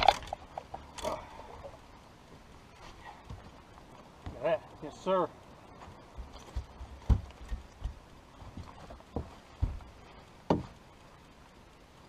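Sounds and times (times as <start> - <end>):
hollow knocks on boat deck: 6.2 - 9.8, 10.5 - 10.8.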